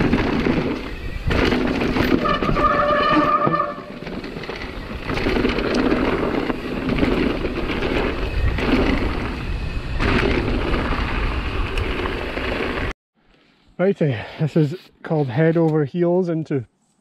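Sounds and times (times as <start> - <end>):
bike rattles and knocks: 0.0 - 12.9
tyres rumbling over dirt: 0.0 - 12.9
wind rushing over microphone: 4.2 - 12.9.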